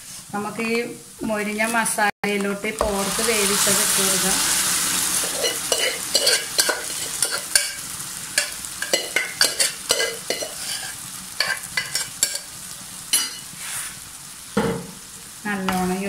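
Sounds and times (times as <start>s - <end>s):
food sizzling in a pan: 0.0s - 16.0s
pot scraping and tapping pan: 5.2s - 7.8s, 8.4s - 12.5s.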